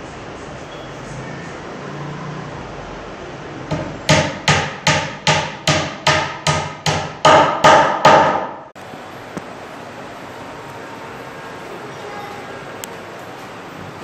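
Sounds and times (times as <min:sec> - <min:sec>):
hammer striking plywood: 0:03.7 - 0:08.6.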